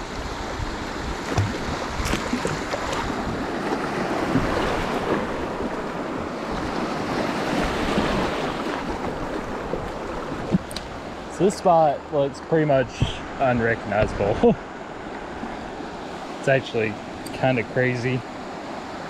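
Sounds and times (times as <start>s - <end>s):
river current rushing and splashing: 0.0s - 19.0s
light knocks: 1.3s - 3.0s.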